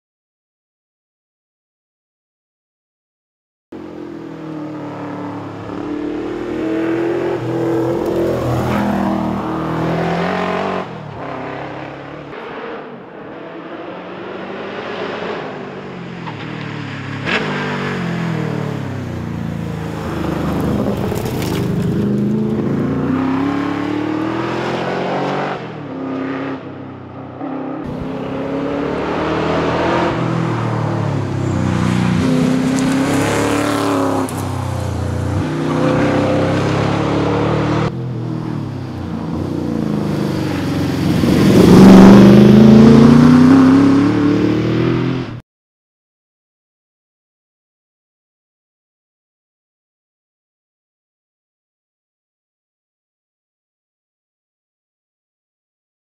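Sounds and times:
rally car accelerating hard: 4.6s - 15.6s, 20.0s - 34.5s, 35.2s - 45.4s.

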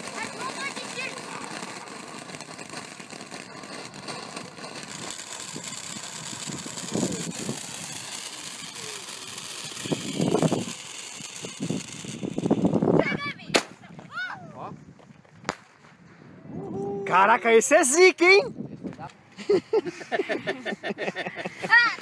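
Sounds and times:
firework hissing and crackling: 0.0s - 14.1s, 19.4s - 22.0s.

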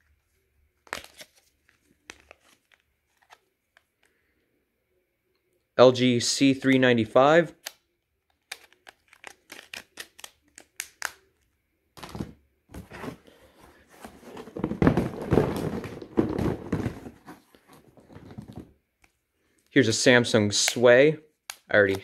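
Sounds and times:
cardboard box thuds: 14.0s - 17.4s.

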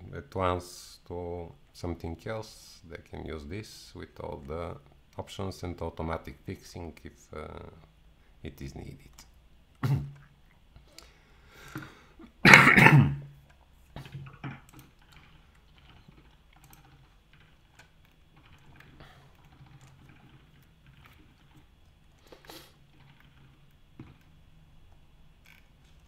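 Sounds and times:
low steady hum: 0.0s - 26.0s
keyboard and mouse clicks: 13.4s - 26.0s.

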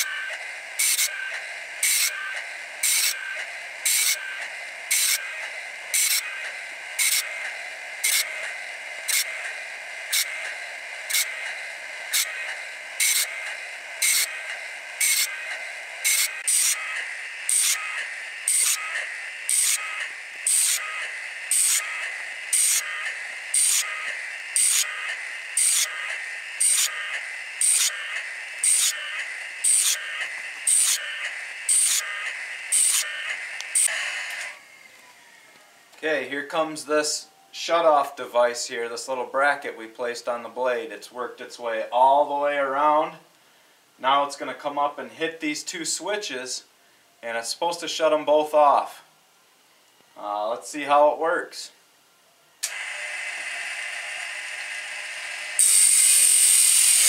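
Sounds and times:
grinding wheel striking saw teeth: 0.0s - 34.6s, 55.4s - 57.0s
motor whining: 0.0s - 36.0s, 52.6s - 57.0s.

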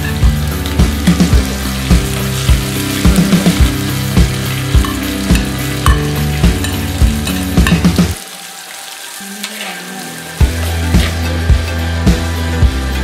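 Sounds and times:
chillies sizzling in hot oil: 0.0s - 12.3s
steel spoon knocking against pot: 4.8s - 8.0s.

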